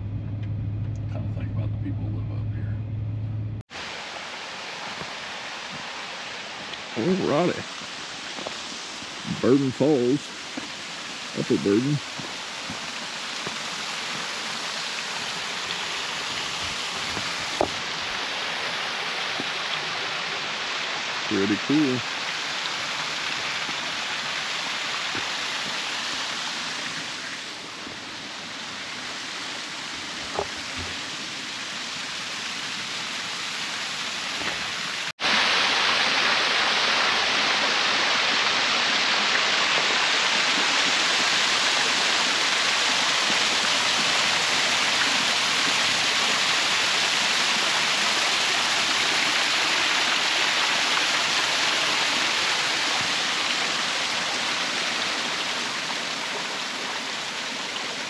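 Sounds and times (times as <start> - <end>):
small waterfall splashing: 3.7 - 58.0.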